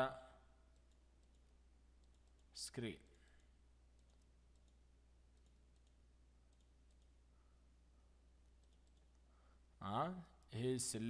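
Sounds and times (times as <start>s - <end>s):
computer mouse clicks: 0.7s - 7.2s, 8.6s - 9.2s.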